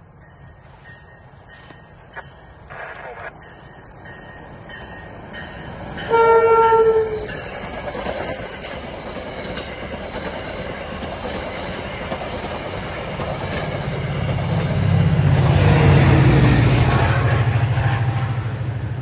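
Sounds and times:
diesel locomotive engine drone: 0:00.0 - 0:19.0
train cars clattering over rails: 0:04.8 - 0:17.4.

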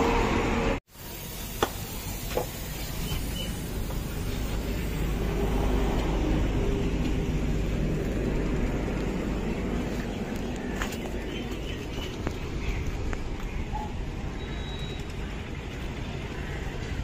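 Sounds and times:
engine rumbling: 0:00.0 - 0:17.0.

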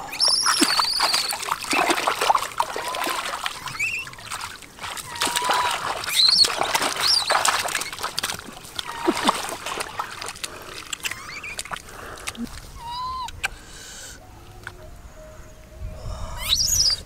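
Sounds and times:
chirping animal calls: 0:00.0 - 0:01.4
water splashing and sloshing: 0:00.0 - 0:13.7.

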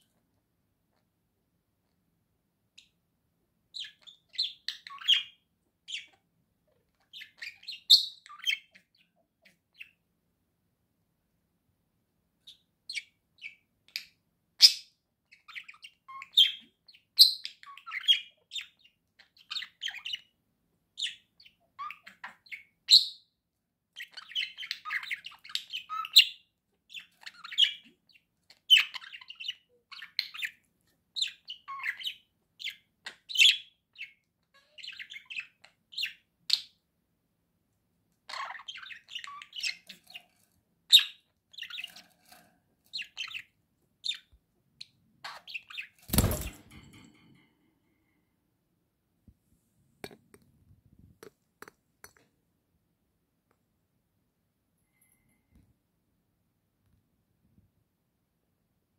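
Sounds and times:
budgerigars chirping and warbling: 0:03.8 - 0:06.3, 0:06.9 - 0:10.0, 0:12.5 - 0:20.4, 0:21.0 - 0:23.1, 0:24.0 - 0:36.8, 0:38.3 - 0:46.6.

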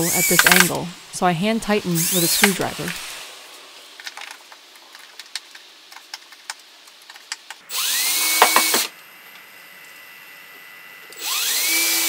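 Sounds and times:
power drill motor: 0:00.0 - 0:00.8, 0:01.8 - 0:04.7, 0:07.1 - 0:12.0
screwdriver clicks and scrapes: 0:00.1 - 0:00.8.

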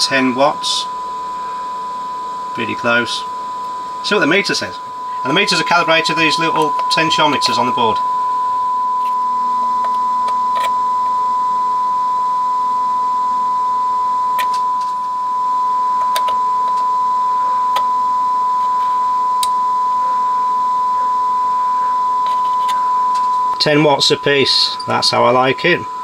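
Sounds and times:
sine test tone: 0:00.0 - 0:26.0.

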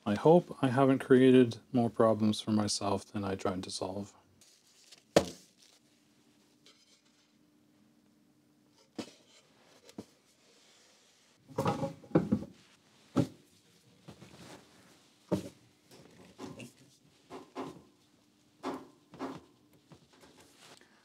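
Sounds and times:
paper stack knocks and thumps: 0:05.1 - 0:05.6.

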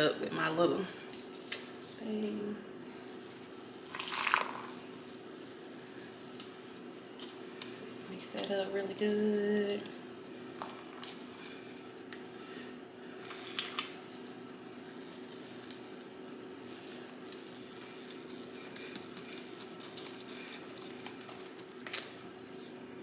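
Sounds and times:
handheld mixer whirring: 0:03.3 - 0:12.3.

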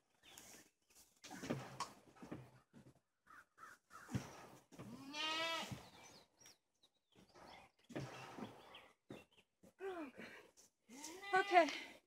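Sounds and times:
goat bleating: 0:04.9 - 0:05.8.

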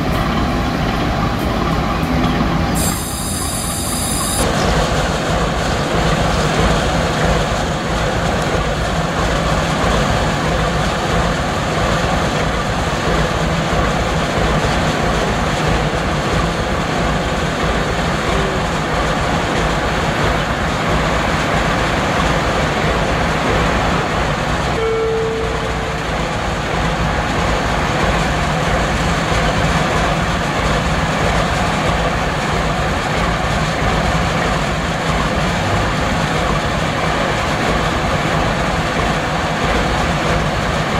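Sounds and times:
diesel locomotive engine idling: 0:00.0 - 0:40.9
brief tone: 0:02.8 - 0:04.5, 0:24.8 - 0:26.0.

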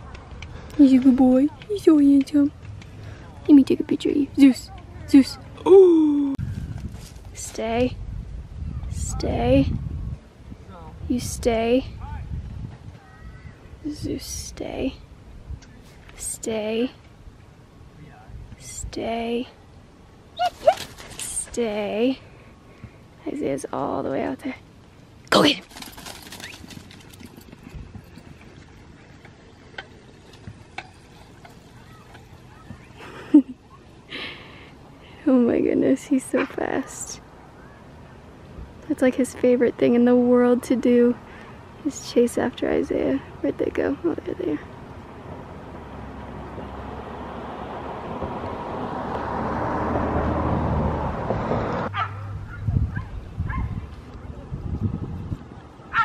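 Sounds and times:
car passing: 0:44.4 - 0:56.0.

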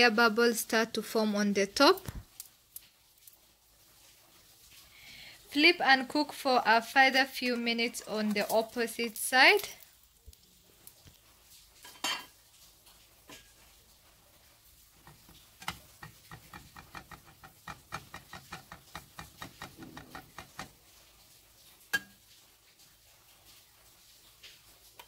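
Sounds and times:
metal spatula knocking on frying pan: 0:15.0 - 0:20.8.

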